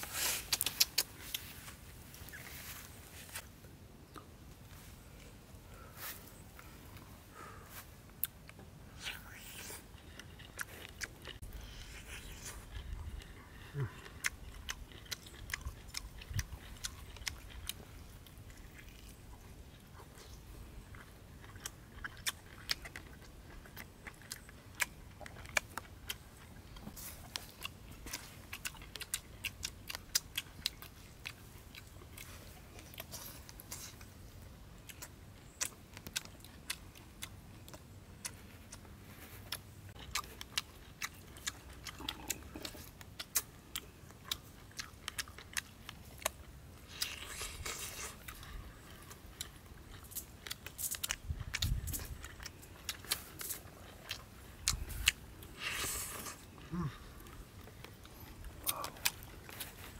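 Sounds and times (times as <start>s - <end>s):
mouth smacks: 0.0s - 1.5s, 41.0s - 43.5s, 50.1s - 59.9s
person chewing and crunching: 0.0s - 2.4s, 8.2s - 59.9s.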